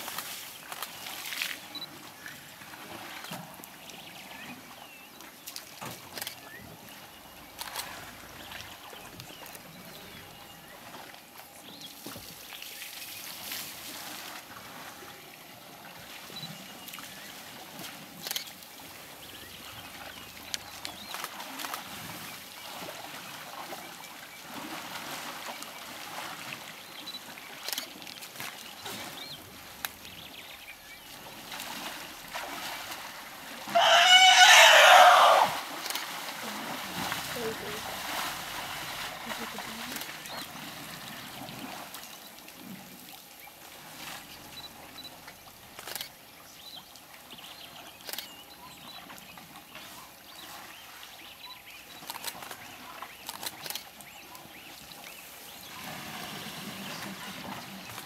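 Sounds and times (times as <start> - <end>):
water trickling and splashing: 0.0 - 58.0
short splashes and knocks: 31.1 - 33.8.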